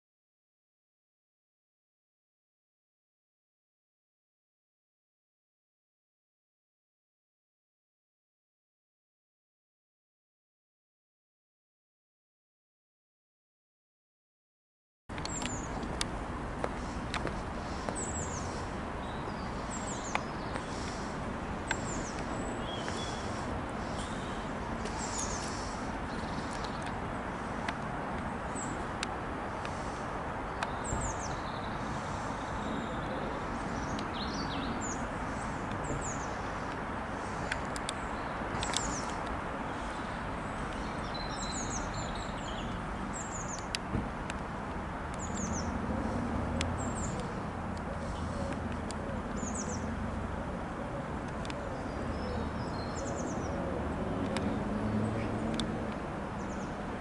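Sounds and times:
distant jet rumble: 0:15.1 - 0:56.8
small birds chirping: 0:15.2 - 0:57.0.

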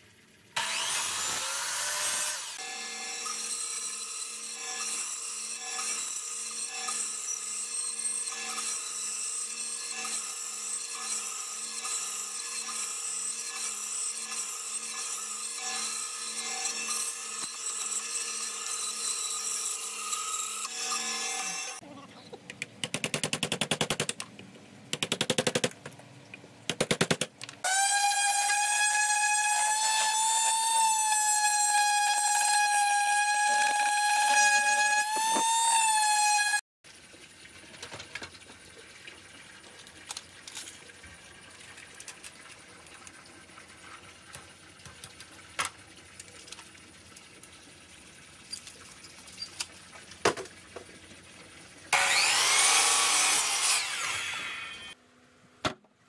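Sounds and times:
bench saw cutting wood: 0:00.6 - 0:21.8, 0:27.6 - 0:36.6, 0:51.9 - 0:55.0.

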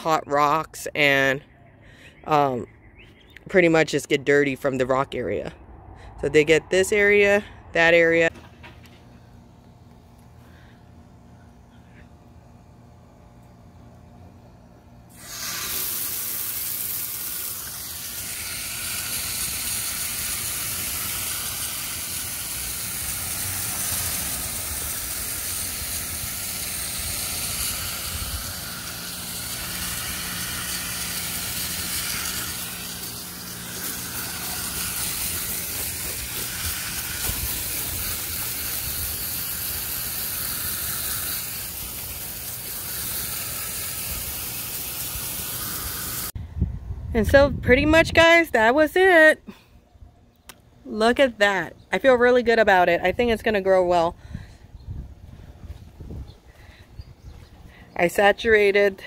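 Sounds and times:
garden hose spraying water: 0:12.4 - 0:46.4.

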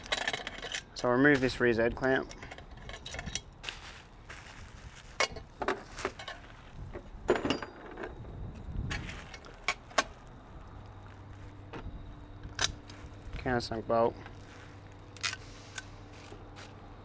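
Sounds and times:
metal parts clinking: 0:00.0 - 0:03.6, 0:07.2 - 0:08.2.

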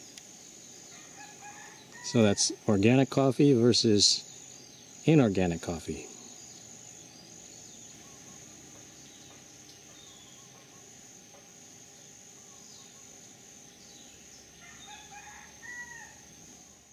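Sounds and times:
insect trilling: 0:00.0 - 0:16.9
faint bird chirps: 0:06.0 - 0:11.0, 0:11.9 - 0:16.9.

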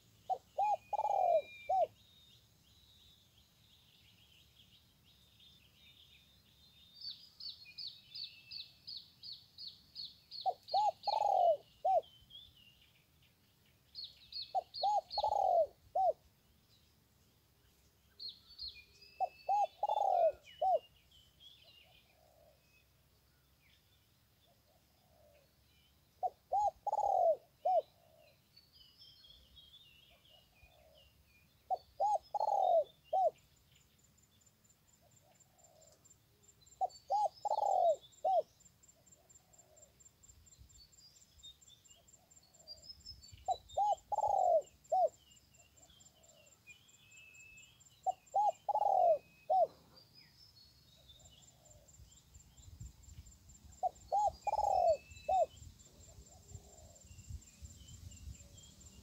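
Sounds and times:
small birds chirping: 0:00.0 - 0:59.0
dove cooing: 0:00.3 - 0:01.9, 0:10.4 - 0:12.1, 0:14.5 - 0:16.2, 0:19.2 - 0:20.8, 0:26.2 - 0:28.3, 0:31.7 - 0:33.4, 0:36.8 - 0:38.5, 0:43.5 - 0:45.2, 0:48.0 - 0:49.8, 0:53.8 - 0:55.5, 0:56.1 - 0:57.0.

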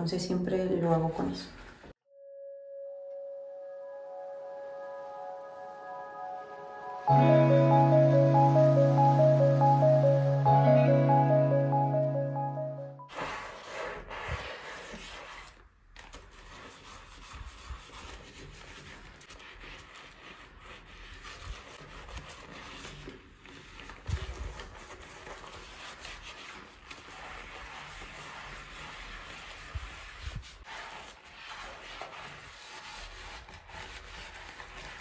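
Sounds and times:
scrubbing a washbasin by hand: 0:13.1 - 0:35.0.

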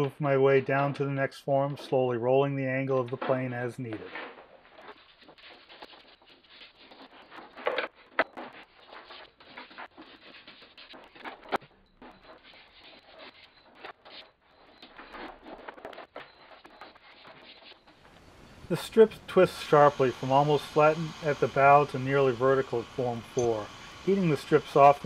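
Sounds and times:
hand plane scraping wood: 0:08.5 - 0:11.6, 0:12.2 - 0:18.0, 0:18.7 - 0:25.0.

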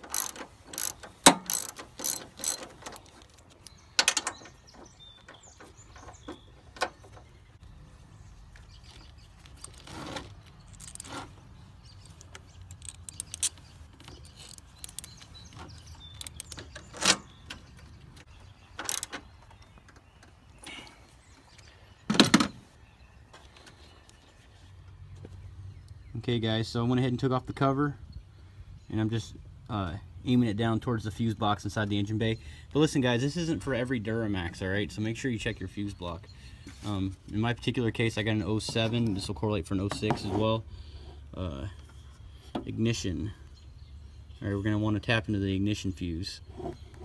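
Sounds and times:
socket ratchet clicking: 0:00.0 - 0:03.0, 0:12.0 - 0:15.2, 0:16.1 - 0:16.8, 0:18.9 - 0:19.1
metallic clicks and knocks: 0:00.0 - 0:07.3, 0:12.0 - 0:20.3.

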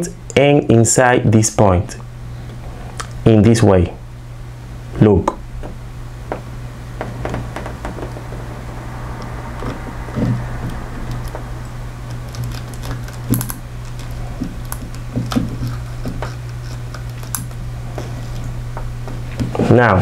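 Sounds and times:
steady low hum: 0:00.0 - 0:20.0
small clicks and scrapes: 0:12.1 - 0:18.5.

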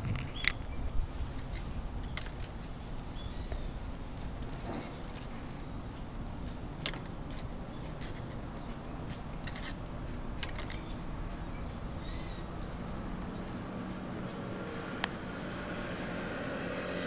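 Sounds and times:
sharp clicks and crackles: 0:00.0 - 0:11.6
low background rumble: 0:00.0 - 0:16.8.

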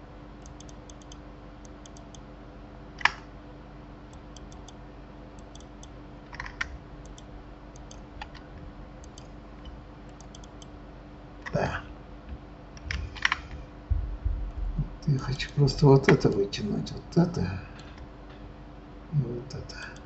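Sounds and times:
steady low hum: 0:00.0 - 0:20.0
keyboard and mouse clicks: 0:00.4 - 0:02.2, 0:04.1 - 0:04.8, 0:05.4 - 0:10.7, 0:12.8 - 0:13.6.

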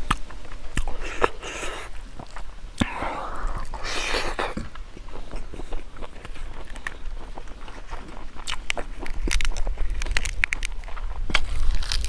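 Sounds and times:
wet chewing smacks: 0:00.0 - 0:12.0
breathy hisses: 0:02.8 - 0:04.6.

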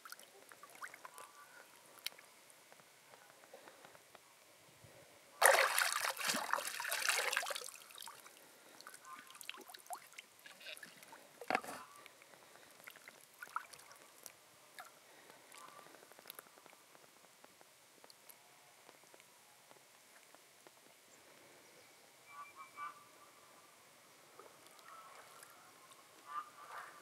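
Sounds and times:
water splashing and trickling: 0:00.0 - 0:01.4, 0:05.4 - 0:11.7, 0:12.6 - 0:16.4
water dripping: 0:05.4 - 0:11.2.

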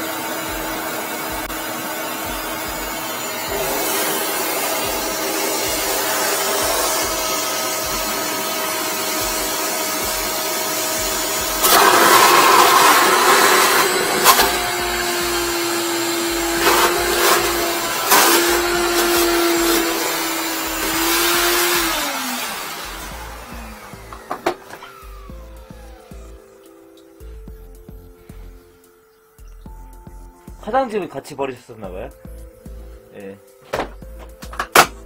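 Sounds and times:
wet-dry vacuum sucking water: 0:00.0 - 0:26.5.

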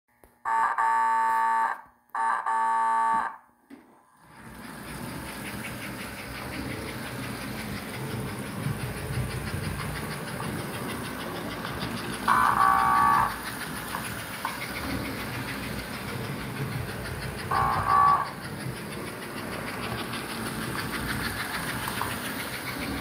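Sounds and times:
toy train motor and wheels running: 0:04.2 - 0:23.0
toy train whistle blasts: 0:12.3 - 0:13.4, 0:17.5 - 0:18.4.

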